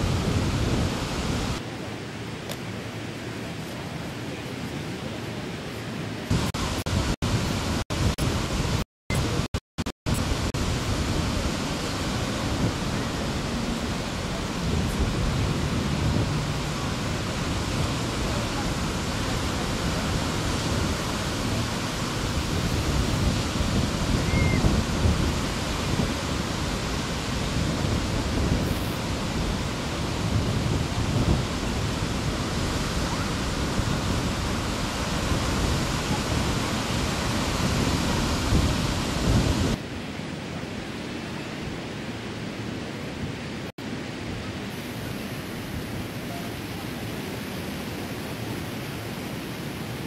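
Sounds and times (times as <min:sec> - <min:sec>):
surf breaking on beach: 0:00.0 - 0:01.6, 0:10.1 - 0:40.3
wind buffeting microphone: 0:00.0 - 0:01.6, 0:10.1 - 0:39.8.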